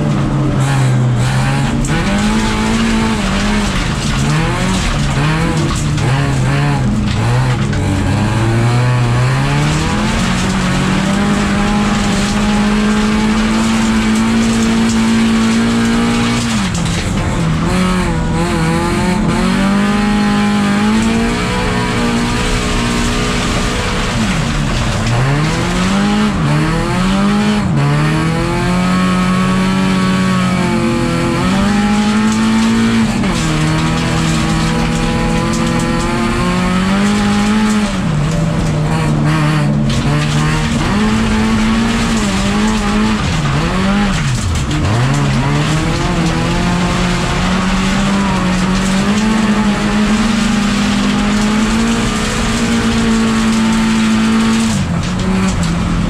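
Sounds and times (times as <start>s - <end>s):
tyre noise on dirt: 0.0s - 20.2s
race car engine revving: 0.0s - 56.0s.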